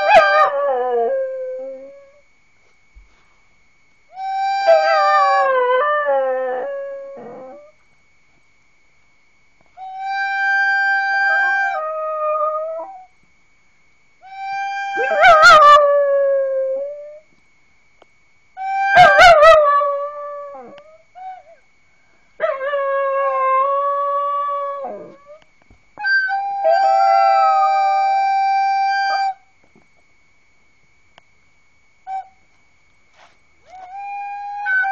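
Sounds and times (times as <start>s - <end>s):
dog howling: 0.0s - 2.2s, 4.2s - 7.8s, 9.8s - 13.1s, 14.2s - 17.2s, 18.6s - 21.6s, 22.4s - 25.4s, 26.0s - 29.4s, 33.7s - 34.9s
recorder playing long notes: 4.1s - 7.6s, 9.7s - 13.0s, 14.2s - 16.4s, 26.3s - 29.4s.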